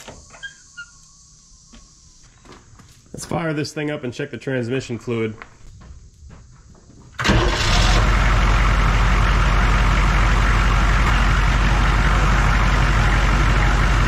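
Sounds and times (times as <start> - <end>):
diesel engine starting and idling: 7.2 - 14.0.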